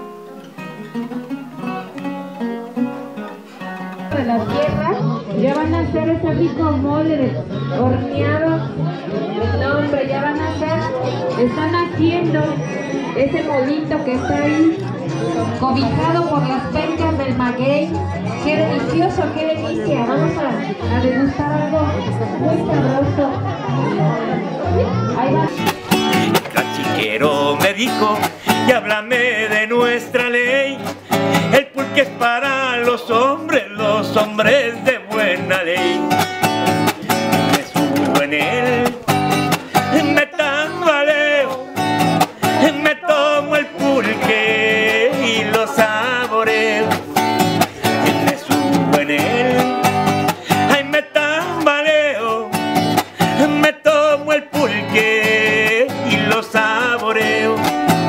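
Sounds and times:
acoustic guitar strumming: 0.0s - 22.2s, 25.4s - 58.0s
man singing: 25.5s - 58.0s.

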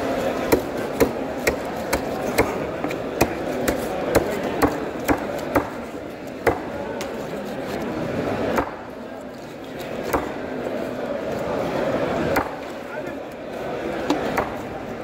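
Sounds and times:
market hubbub: 0.0s - 15.0s
knife chopping fish on wooden block: 0.4s - 5.8s.

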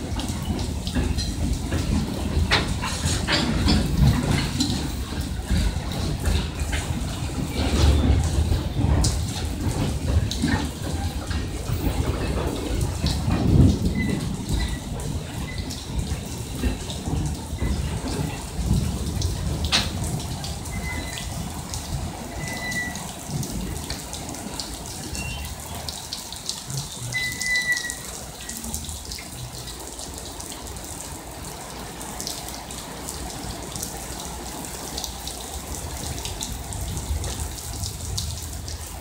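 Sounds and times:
rain patter: 0.0s - 39.0s
running water: 0.0s - 39.0s
train wheels rumbling on rails: 0.0s - 39.0s.

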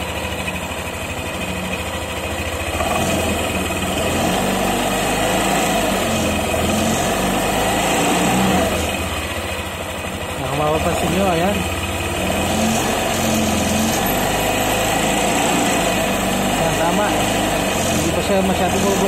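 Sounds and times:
scooter engine revving: 0.0s - 19.0s.

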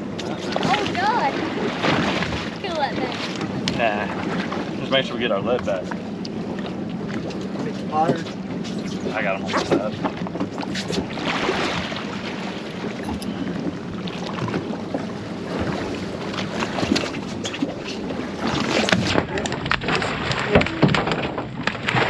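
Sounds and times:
water slapping against boat hull: 0.0s - 22.0s
wind buffeting microphone: 0.0s - 22.0s
fish splashing at surface: 10.6s - 12.6s, 15.6s - 22.0s.

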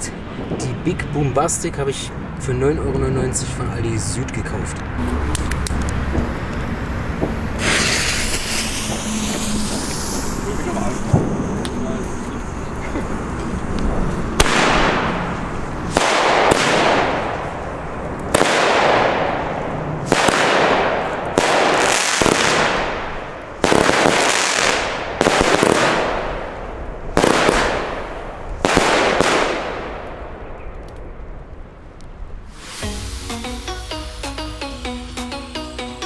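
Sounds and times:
firework shots: 7.1s - 11.8s, 14.2s - 30.4s, 32.4s - 33.4s.

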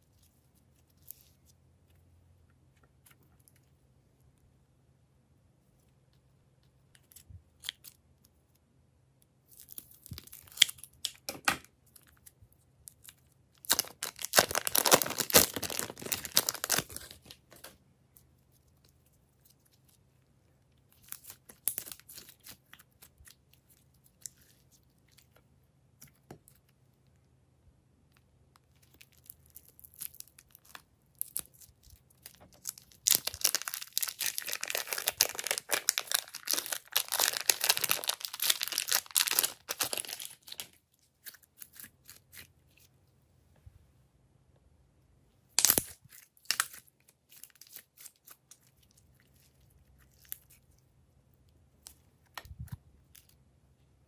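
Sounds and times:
plastic bags crinkling and tearing: 13.6s - 17.7s, 29.1s - 42.5s, 45.6s - 48.6s.

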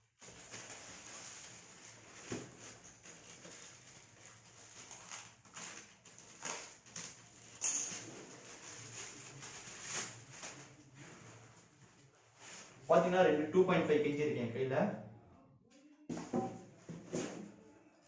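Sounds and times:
plastic wrapping crinkling: 0.1s - 13.0s.

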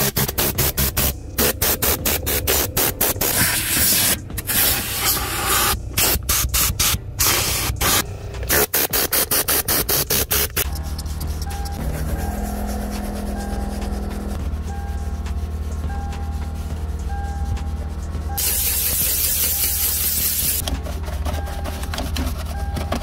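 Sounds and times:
compressed air blow gun hissing: 18.4s - 20.6s.

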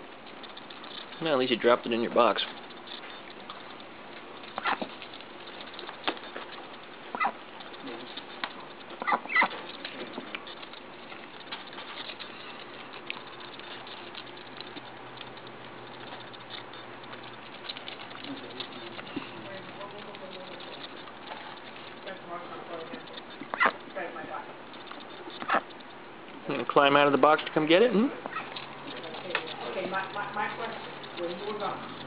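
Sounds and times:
duck's bill clicking and snapping: 0.0s - 32.0s
duck squeaks: 4.5s - 5.0s, 7.1s - 7.4s, 8.8s - 9.7s, 23.0s - 23.9s, 24.7s - 25.9s, 28.2s - 28.6s.

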